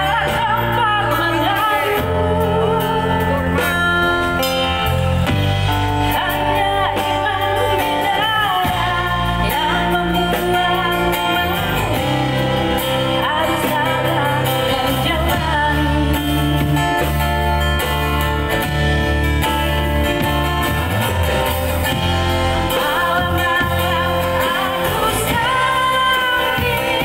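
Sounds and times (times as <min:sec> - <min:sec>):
woman singing through a pa: 0:00.0 - 0:04.4, 0:06.0 - 0:17.2, 0:22.6 - 0:27.0
acoustic guitar: 0:00.0 - 0:27.0
drum kit: 0:00.0 - 0:27.0.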